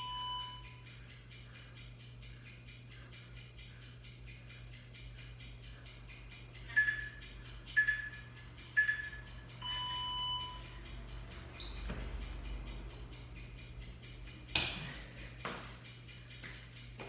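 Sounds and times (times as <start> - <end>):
long low beep: 0.0 - 0.8, 6.7 - 10.8
short timer beeps: 6.7 - 10.8.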